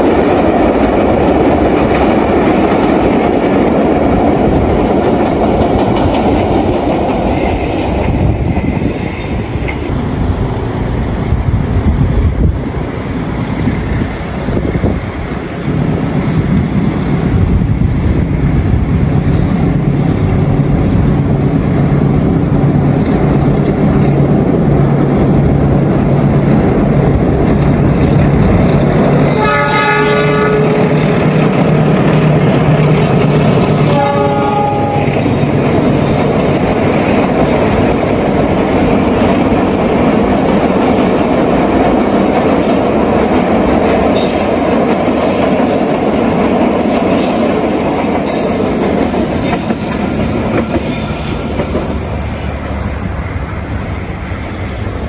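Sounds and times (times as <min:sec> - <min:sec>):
train horn blasts: 0:29.2 - 0:31.0, 0:33.6 - 0:35.3.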